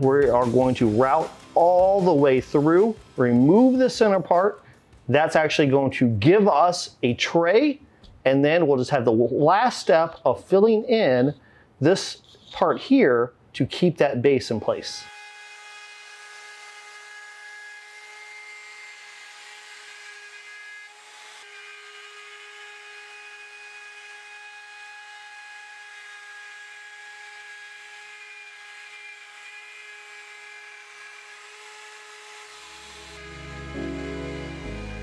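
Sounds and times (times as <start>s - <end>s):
router whining cutting wood: 15.0s - 35.0s.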